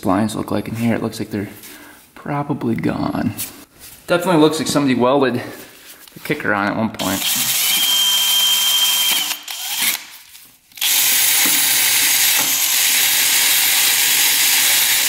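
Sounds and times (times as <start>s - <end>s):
drill with wire brush whirring: 7.0s - 15.0s.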